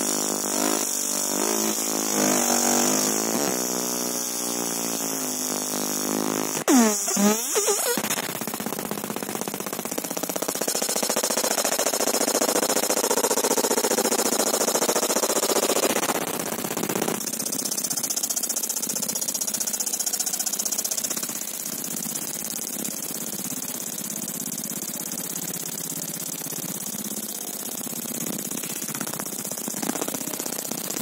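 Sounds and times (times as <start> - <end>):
laser buzzing crackle: 0.0 - 12.8, 23.4 - 31.0.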